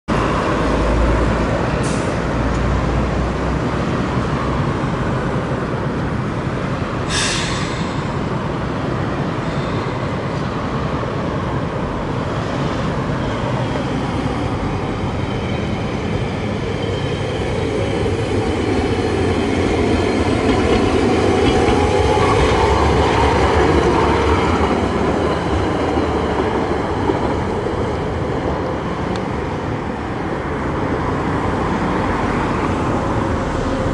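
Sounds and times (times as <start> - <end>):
road traffic: 0.1 - 33.9
streetcar motor and wheels: 0.1 - 33.9
short hiss: 7.1 - 8.1.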